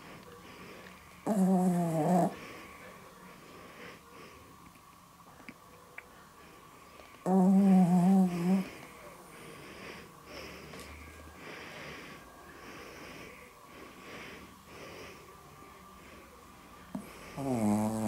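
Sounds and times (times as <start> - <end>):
dog snoring: 1.2 - 2.5, 7.2 - 8.8, 16.9 - 18.0.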